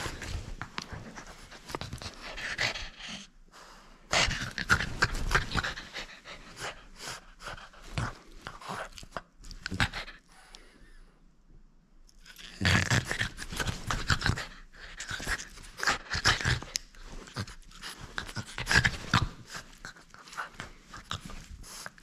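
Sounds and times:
dog panting hard: 4.1s - 8.8s.

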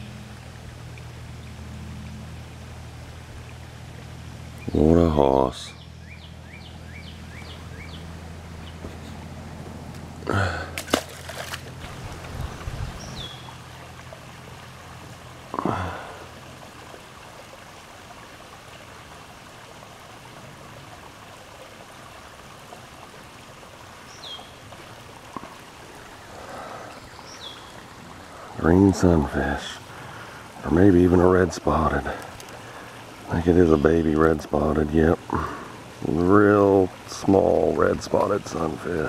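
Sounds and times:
trickle of running water: 0.0s - 39.0s
bird chirping: 5.7s - 9.2s, 12.7s - 13.6s, 24.1s - 24.6s, 26.2s - 27.8s
water splashing: 7.1s - 39.0s.

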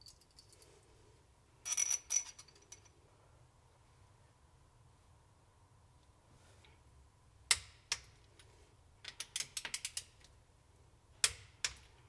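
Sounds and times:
small metal clicks: 7.5s - 10.4s.

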